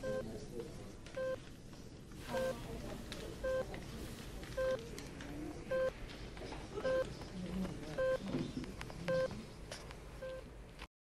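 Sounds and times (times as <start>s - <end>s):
patient monitor beeping: 0.0s - 0.4s, 1.1s - 1.5s, 2.3s - 2.7s, 3.4s - 3.8s, 4.5s - 4.9s, 5.7s - 5.9s, 6.8s - 7.2s, 7.9s - 8.3s, 9.0s - 9.4s, 10.2s - 10.5s.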